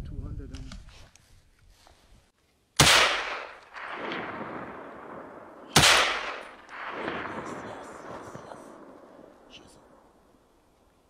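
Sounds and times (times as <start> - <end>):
gunshots with rolling echo: 2.8 - 10.9.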